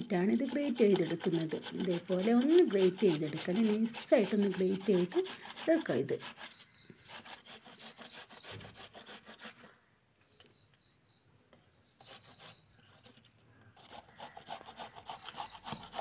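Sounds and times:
cassava grated on plastic grater: 0:00.0 - 0:09.7, 0:13.8 - 0:16.0.

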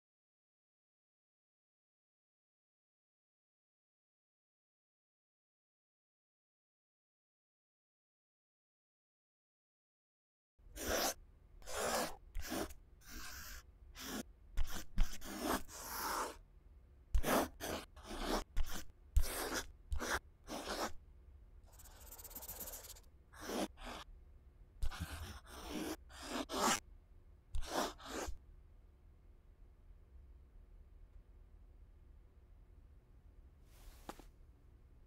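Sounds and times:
pencil scratching on paper: 0:10.7 - 0:16.4, 0:17.1 - 0:21.0, 0:21.6 - 0:24.1, 0:24.8 - 0:26.8, 0:27.6 - 0:28.4.

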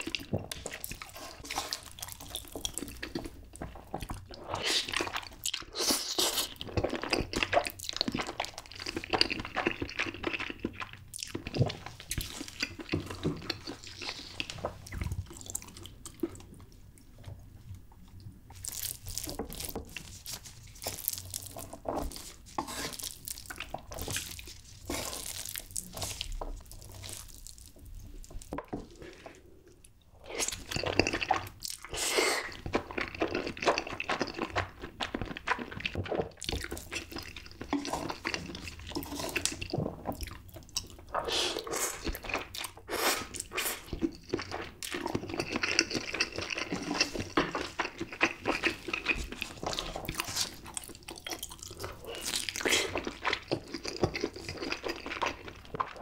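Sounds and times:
chewing noodles close up: 0:00.0 - 0:17.2, 0:18.0 - 0:28.6, 0:30.3 - 0:56.0
chopsticks stirring noodles: 0:19.2 - 0:27.3.

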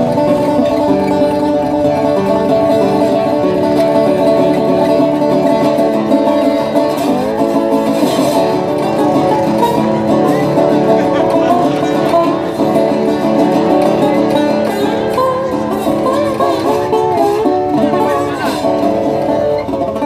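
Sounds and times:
plucked string instrument melody: 0:00.0 - 0:20.0.

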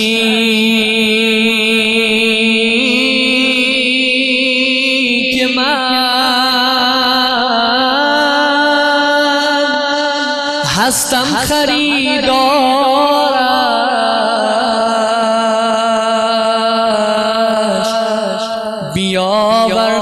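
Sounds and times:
man singing devotional song: 0:00.0 - 0:20.0.

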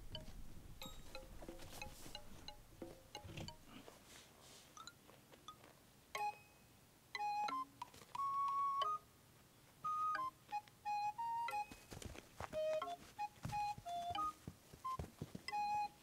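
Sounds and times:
faint chime plinks: 0:00.2 - 0:02.6
flute-like melody: 0:07.1 - 0:09.1, 0:09.8 - 0:16.0.

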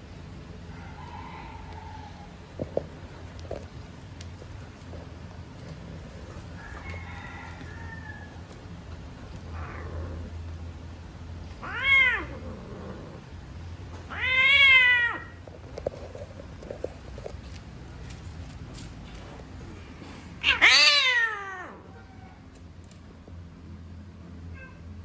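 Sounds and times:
faint cat cries: 0:11.6 - 0:12.6, 0:20.4 - 0:22.5, 0:24.5 - 0:25.0
cat crying out: 0:11.6 - 0:13.2, 0:14.0 - 0:15.4, 0:20.4 - 0:22.5, 0:24.5 - 0:25.0.

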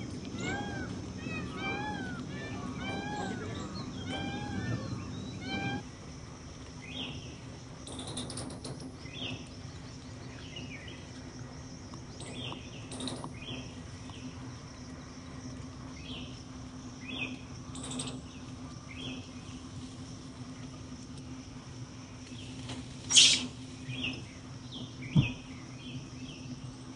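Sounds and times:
bird chirping: 0:00.0 - 0:05.8, 0:06.8 - 0:08.3, 0:22.3 - 0:26.9
steady low hum: 0:00.0 - 0:26.9
brief scratchy noises: 0:23.1 - 0:23.5.

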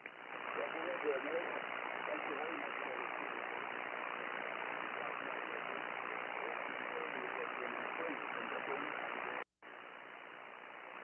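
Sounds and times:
radio receiver hiss: 0:00.0 - 0:11.0
faint radio voice: 0:00.5 - 0:03.9, 0:04.5 - 0:09.1.

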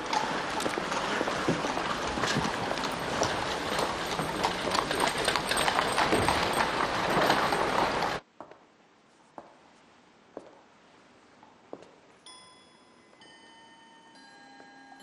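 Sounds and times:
dense clatter: 0:00.0 - 0:08.2
horse hooves clip-clopping: 0:00.0 - 0:08.6.

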